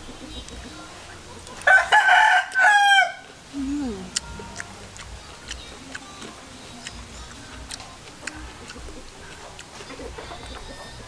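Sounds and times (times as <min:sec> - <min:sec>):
rooster crowing: 0:01.7 - 0:03.3.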